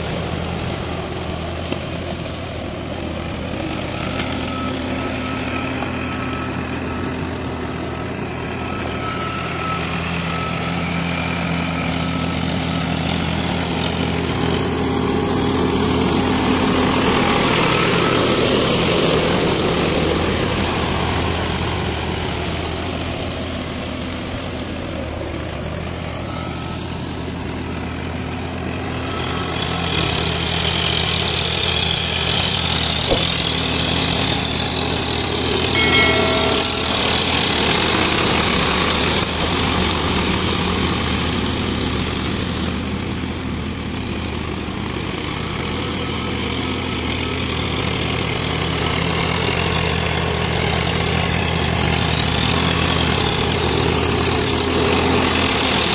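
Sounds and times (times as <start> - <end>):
tractor engine running: 0.0 - 55.9
brief high-pitched tone: 35.8 - 38.1.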